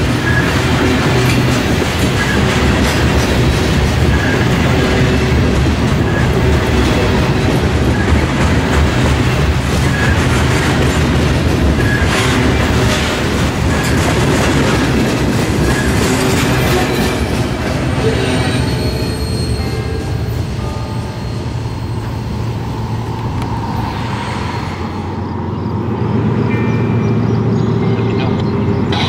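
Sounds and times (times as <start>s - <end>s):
high wheel squeal: 0.0s - 1.1s, 3.2s - 4.8s, 9.8s - 10.4s, 11.8s - 12.5s, 15.6s - 20.3s, 20.9s - 23.0s
freight train rolling on track: 0.0s - 29.0s.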